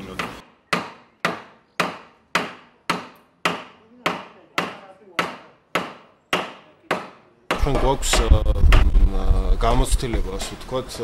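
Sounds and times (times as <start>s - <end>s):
hammer striking wood: 0.2s - 9.0s.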